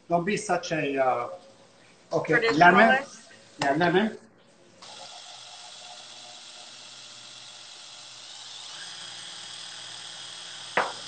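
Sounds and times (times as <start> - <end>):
immersion blender whining: 4.8 - 11.0.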